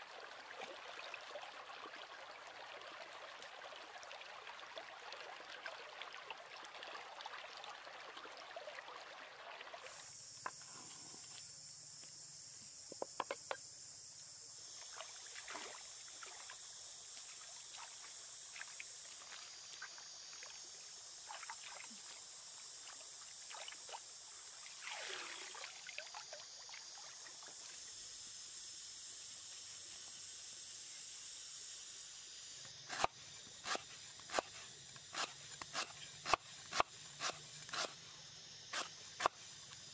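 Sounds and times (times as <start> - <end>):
stream running over stones: 0.0 - 10.6, 14.6 - 28.1
water sloshing and splashing: 14.9 - 16.6, 24.7 - 26.4
steady high hiss: 26.5 - 36.1.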